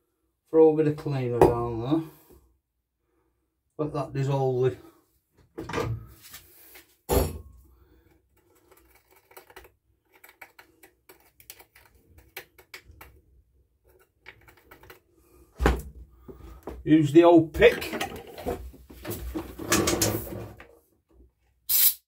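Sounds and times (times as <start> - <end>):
thump: 7.1 - 7.5.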